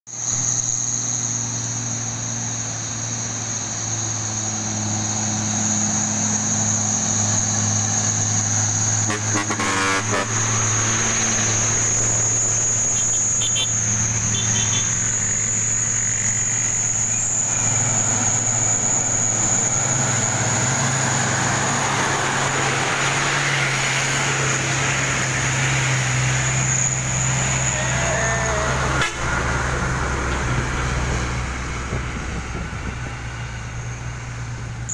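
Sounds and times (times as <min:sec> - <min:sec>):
truck engines labouring uphill: 0:00.1 - 0:34.9
high-pitched insect buzz: 0:00.2 - 0:30.6.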